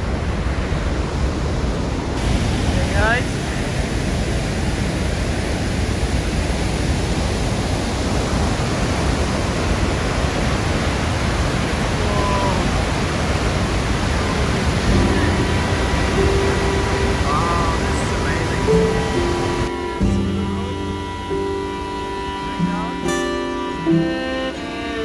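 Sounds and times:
waterfall rushing: 0.0s - 25.0s
music with held tones: 14.3s - 25.0s.

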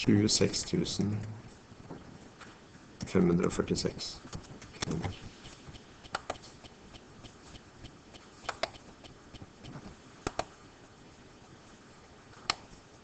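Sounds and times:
computer mouse clicking: 4.3s - 10.6s, 12.4s - 12.7s.

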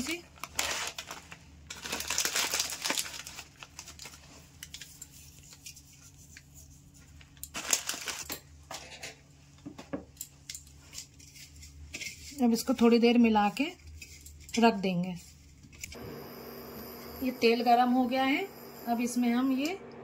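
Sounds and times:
foil packet crinkling: 0.0s - 5.1s, 7.2s - 8.6s.

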